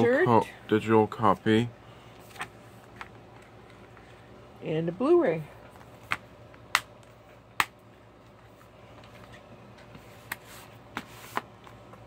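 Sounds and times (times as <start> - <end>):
cardboard rustling scrape: 10.0 - 11.5.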